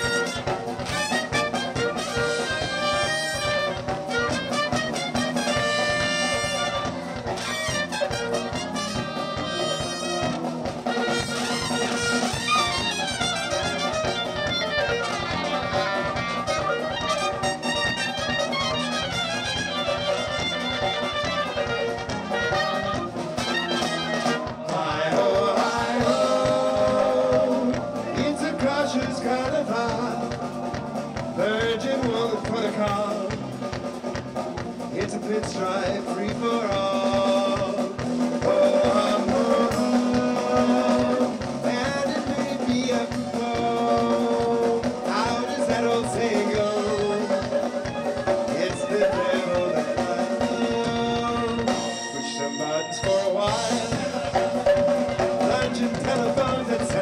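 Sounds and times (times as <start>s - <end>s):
horns: 0.0s - 57.0s
live band dance music: 0.0s - 57.0s
man singing: 20.1s - 33.8s, 34.8s - 57.0s.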